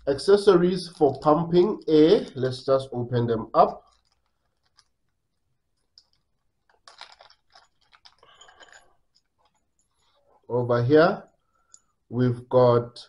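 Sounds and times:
plastic bag crinkling: 0:00.8 - 0:10.4.

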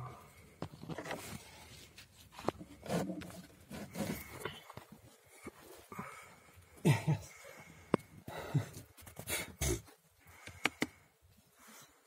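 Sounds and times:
scrapes and knocks of crawling: 0:00.5 - 0:06.5.

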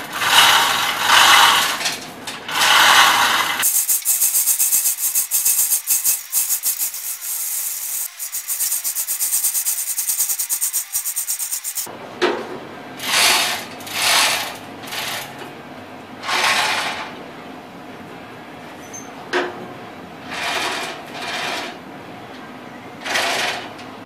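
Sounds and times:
chain hoist rattling clicks: 0:03.6 - 0:11.9.

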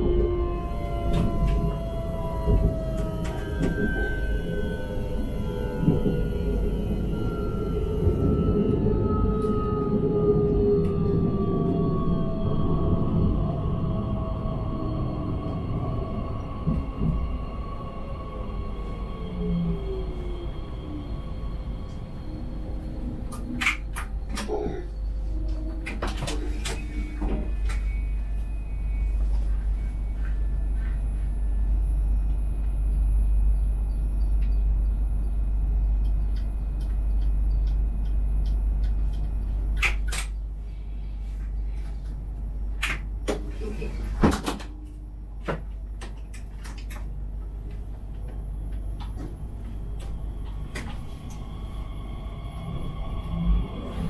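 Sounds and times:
electric traction whine: 0:00.0 - 0:25.3
train equipment hum: 0:00.0 - 0:54.0.

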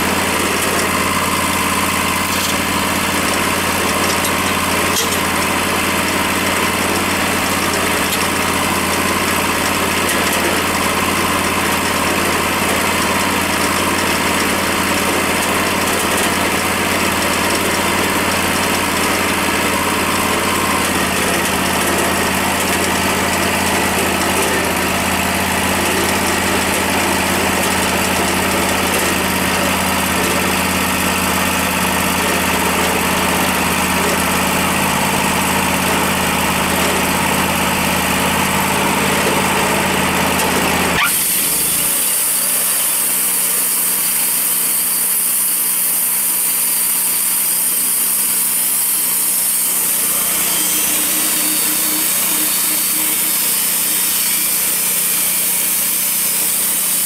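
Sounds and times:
sawmill engine hum: 0:00.0 - 0:57.0
band saw hissing through log: 0:41.0 - 0:57.0.

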